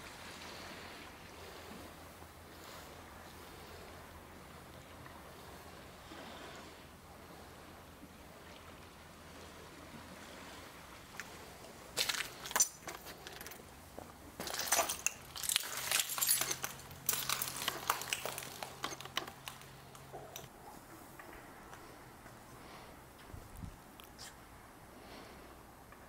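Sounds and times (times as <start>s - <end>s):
footsteps crunching on rubble: 12.0s - 20.4s.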